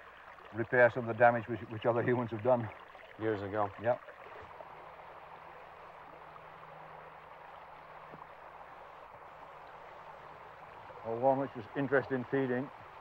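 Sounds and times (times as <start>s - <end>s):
stream running: 0.0s - 13.0s.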